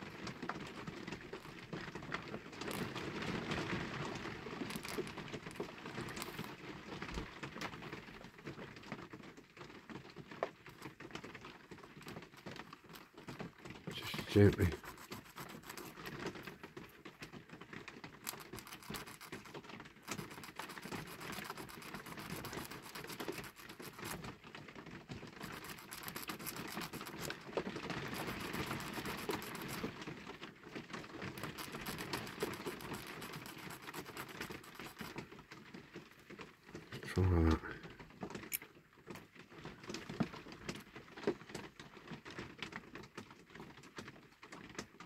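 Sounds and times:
hand file rasping on plastic: 4.7 - 6.5, 13.9 - 16.5, 18.2 - 24.3, 25.4 - 29.9, 31.3 - 35.2.

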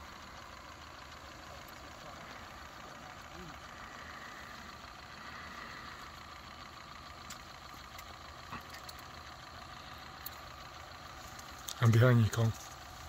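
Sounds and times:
engine-like hum: 0.0 - 13.0
faint clicks: 7.1 - 9.3, 10.0 - 10.6, 11.3 - 11.8.

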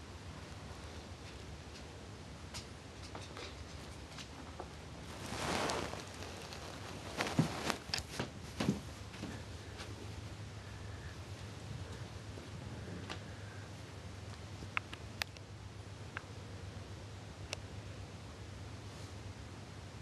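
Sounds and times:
low steady hum: 0.0 - 20.0
soft brushing rustle: 3.8 - 12.6.

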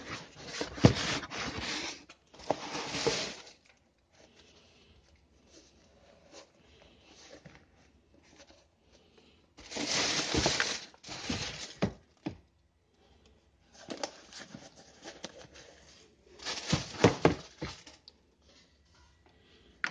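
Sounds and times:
tissue paper rustling and crinkling: 0.0 - 3.6, 9.6 - 12.0, 13.9 - 18.0.

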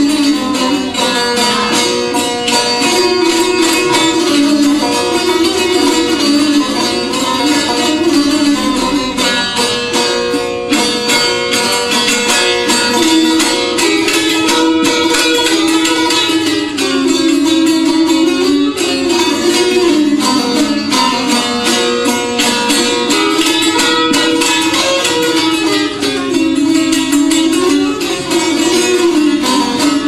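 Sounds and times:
plucked lutes playing folk tune: 0.0 - 30.0.

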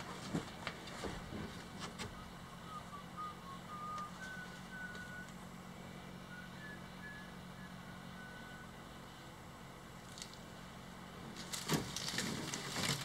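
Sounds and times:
steady low hum: 0.0 - 13.0
bird whistling: 2.2 - 5.4, 6.3 - 8.8.

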